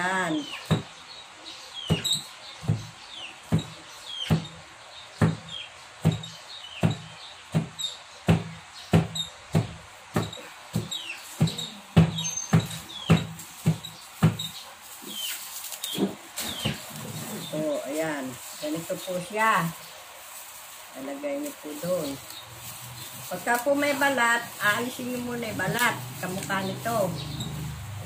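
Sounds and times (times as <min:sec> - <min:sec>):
knife chopping on wooden board: 0:06.8 - 0:14.5.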